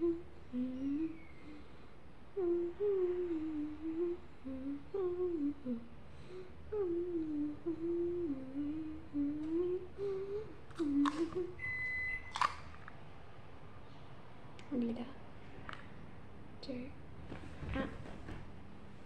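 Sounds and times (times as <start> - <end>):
girl humming: 0.0 - 1.7, 2.4 - 11.6.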